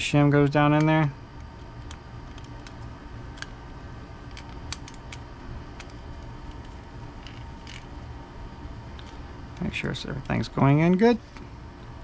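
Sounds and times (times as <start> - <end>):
steady low hum: 0.0 - 12.0
small parts clicking and knocking: 1.8 - 3.6, 4.3 - 5.2, 5.8 - 7.9.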